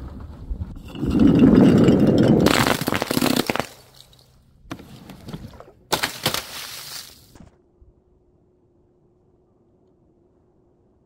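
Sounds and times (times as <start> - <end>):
bottles rolling on wooden plank: 0.7 - 5.7
glass shattering: 0.9 - 4.3.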